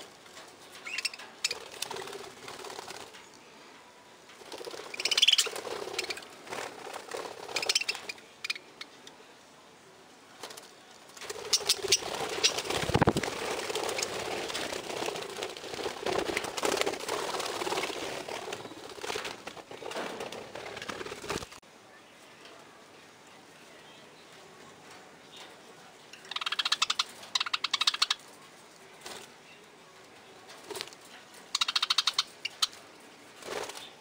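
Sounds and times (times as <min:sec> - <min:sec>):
bird wing-flapping: 0:00.0 - 0:03.3, 0:04.3 - 0:08.2, 0:10.4 - 0:21.6, 0:33.4 - 0:34.0
budgerigars chirping and chattering: 0:00.8 - 0:01.8, 0:04.8 - 0:06.3, 0:07.5 - 0:08.9, 0:11.4 - 0:13.2, 0:26.1 - 0:28.3, 0:31.5 - 0:32.8.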